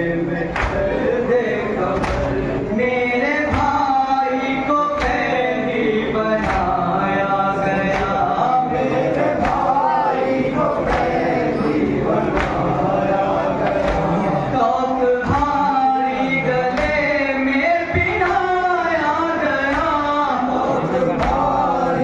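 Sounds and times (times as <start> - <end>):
man reciting into a microphone: 0.0 - 22.0
men chanting in unison: 0.0 - 22.0
chest-beating slaps: 2.0 - 2.4, 6.4 - 6.8, 9.2 - 9.8, 10.8 - 12.8, 13.6 - 14.2.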